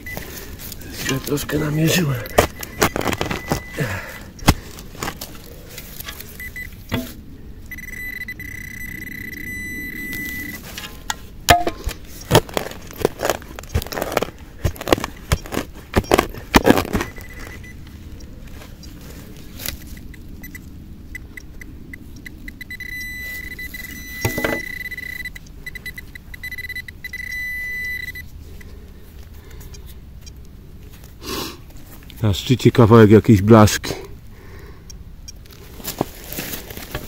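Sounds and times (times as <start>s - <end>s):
digging tool striking ground: 0.0s - 7.2s, 10.3s - 17.7s, 24.1s - 24.8s, 36.0s - 37.0s
metal detector buzzing tone: 7.7s - 10.6s, 22.6s - 28.3s.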